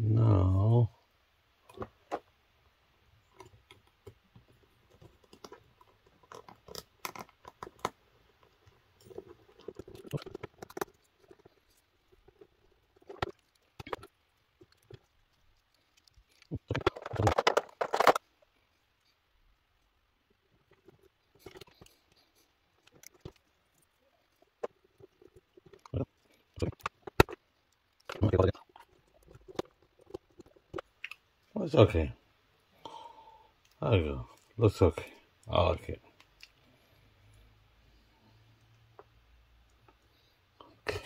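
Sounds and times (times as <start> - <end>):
plastic clattering: 3.4 - 18.3, 22.8 - 31.2
plastic clicks and rattles: 3.4 - 18.3, 22.8 - 31.3.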